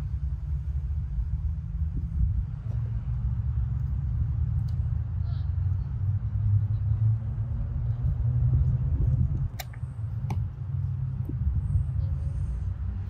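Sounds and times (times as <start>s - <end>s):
low unsteady rumble: 0.0s - 13.0s
small sharp clicks: 9.4s - 10.4s.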